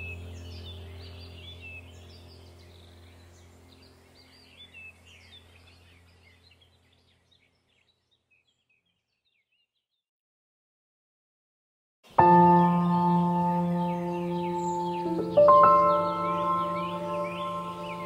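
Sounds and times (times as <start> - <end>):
low steady hum: 0.0 - 8.0, 12.1 - 18.0
birds chirping: 0.0 - 10.0, 12.1 - 18.0.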